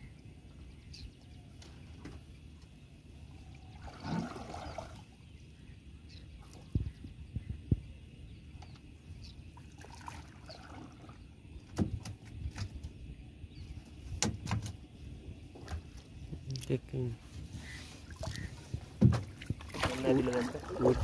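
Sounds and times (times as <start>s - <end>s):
water splashing and dripping: 18.0s - 21.0s
knocks against boat hull: 19.0s - 19.4s.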